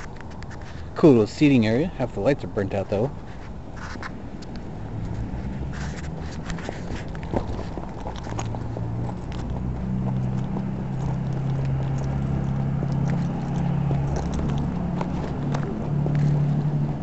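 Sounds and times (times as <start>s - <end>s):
footsteps on pavement: 0.0s - 17.0s
low motor hum: 4.6s - 17.0s.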